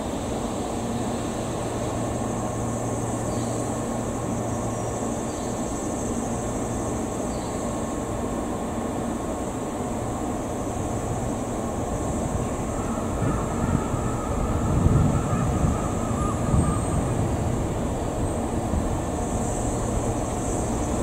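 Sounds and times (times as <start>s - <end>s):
electric train equipment humming: 0.0s - 21.0s.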